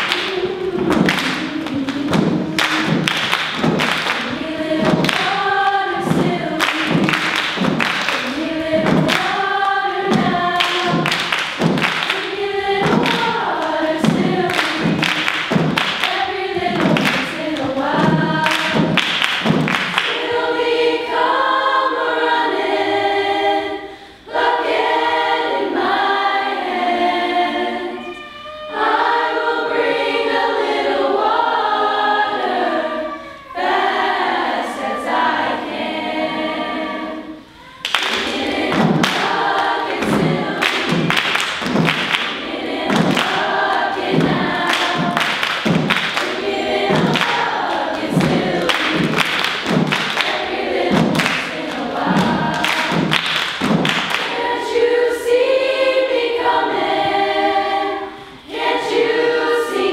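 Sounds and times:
body-percussion claps and thumps: 0.0s - 20.3s, 37.8s - 54.5s
girls' chorus singing: 0.0s - 59.9s.

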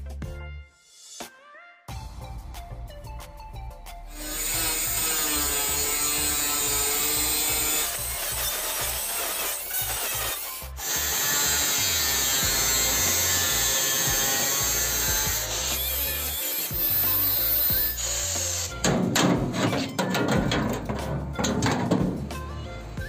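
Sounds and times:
angle grinder motor whine: 4.2s - 18.8s
disc rasping on metal: 4.2s - 22.2s.

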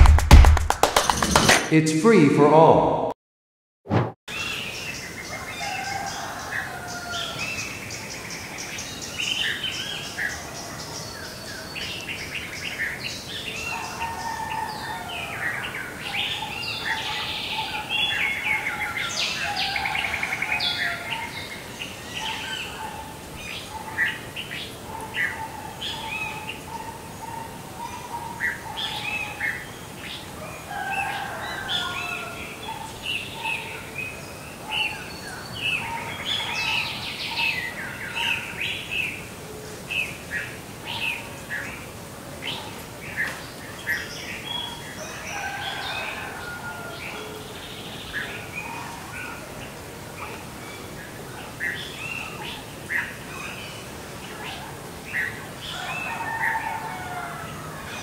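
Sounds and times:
birds chirping and singing: 4.3s - 39.2s.

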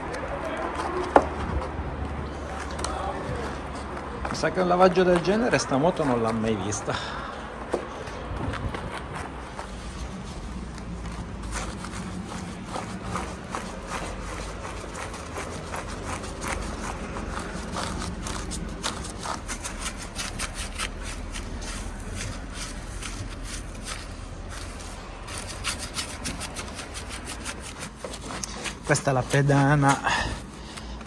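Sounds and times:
brush scrubbing a tyre: 8.6s - 31.0s.

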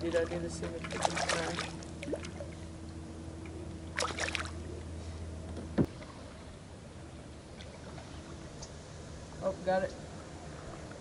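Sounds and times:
low background hum: 0.0s - 11.0s
fish splashing at water surface: 3.9s - 4.6s.

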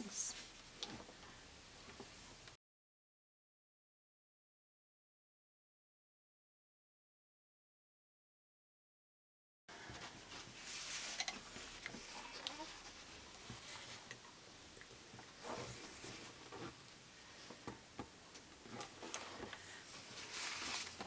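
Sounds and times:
faint fabric rustling: 9.7s - 14.4s, 15.0s - 17.9s, 18.6s - 21.0s.

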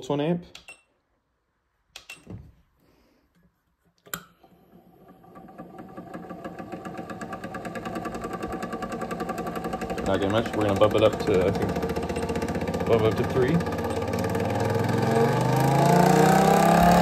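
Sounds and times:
clicks: 0.4s - 0.9s, 1.9s - 2.4s
siren motor pulsing buzz: 11.7s - 12.9s.

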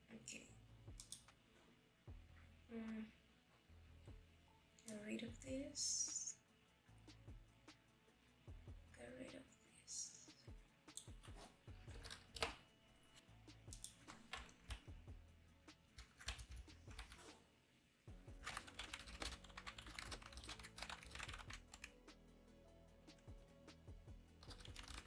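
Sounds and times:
computer keyboard typing: 11.9s - 12.6s, 13.7s - 14.9s, 16.0s - 17.3s, 18.4s - 22.0s, 24.4s - 25.0s.

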